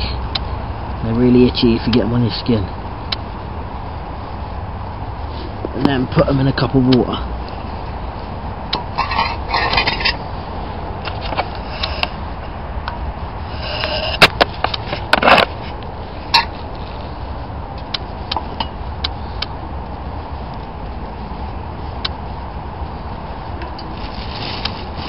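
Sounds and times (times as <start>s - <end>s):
steady low rumble: 0.0s - 25.0s
scraping rustles: 7.4s - 10.5s, 13.4s - 17.4s, 20.2s - 25.0s.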